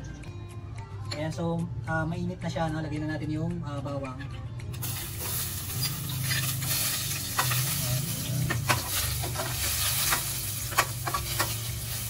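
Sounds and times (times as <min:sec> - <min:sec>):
garlic sizzling in hot oil: 0:04.8 - 0:12.0
metal spatula scraping pan: 0:05.0 - 0:12.0.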